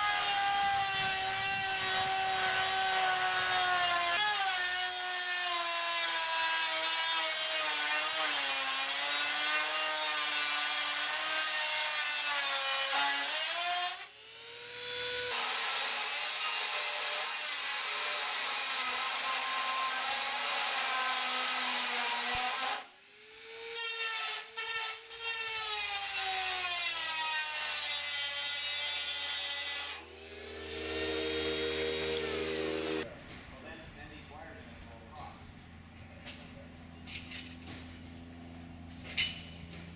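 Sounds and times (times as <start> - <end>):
rotary tool cutting metal: 0.0 - 33.1.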